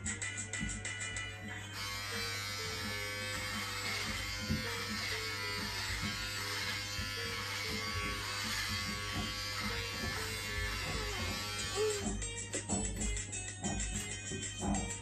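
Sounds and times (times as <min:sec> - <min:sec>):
background music: 0:00.0 - 0:15.0
hair clippers buzzing: 0:01.2 - 0:15.0.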